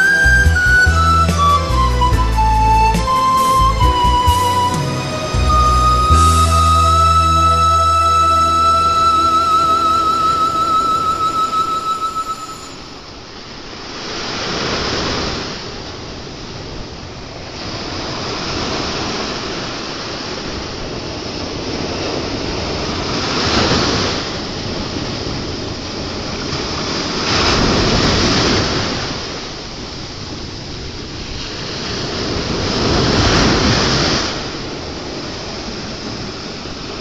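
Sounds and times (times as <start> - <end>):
ocean waves breaking on shore: 0.0 - 37.0.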